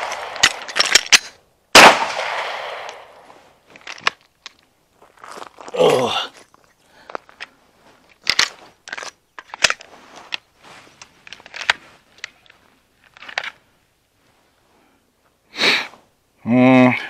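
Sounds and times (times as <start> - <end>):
rustles of gear handled: 3.2 - 16.1.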